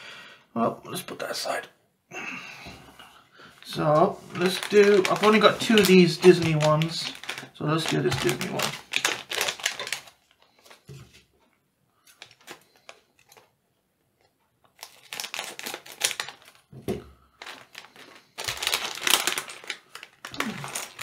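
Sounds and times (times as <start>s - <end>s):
plastic foil bag crinkling: 3.6s - 10.9s, 12.0s - 13.5s, 14.6s - 21.0s.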